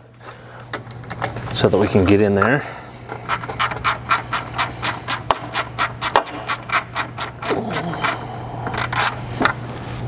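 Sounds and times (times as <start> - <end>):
steady low hum: 0.0 - 10.0
hand ratchet clicking: 3.1 - 9.2.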